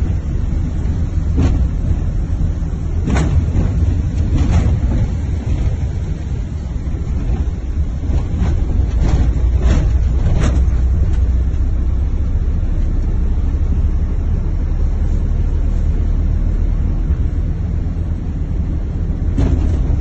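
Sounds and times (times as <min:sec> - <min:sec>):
road and engine rumble: 0:00.0 - 0:20.0.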